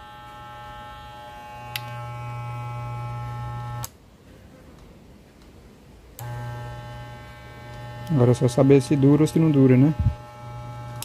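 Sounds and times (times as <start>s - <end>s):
hair clipper buzzing: 0.0s - 3.9s, 6.2s - 11.0s.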